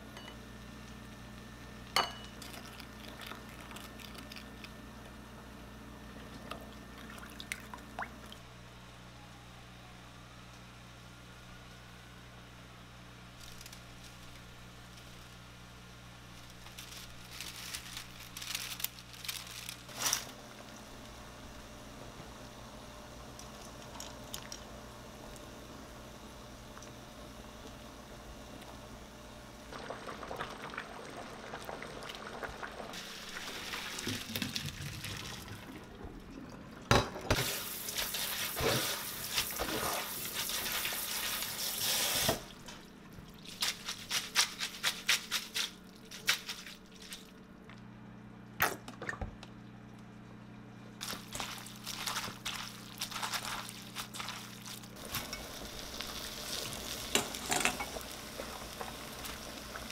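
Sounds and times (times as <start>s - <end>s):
strainer shaken with sharp knocks: 43.5s - 47.2s.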